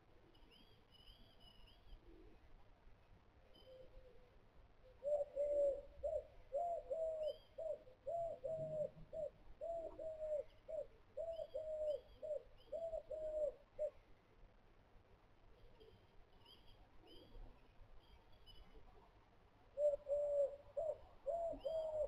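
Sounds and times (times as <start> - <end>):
dove cooing: 5.0 - 14.0, 19.8 - 22.0.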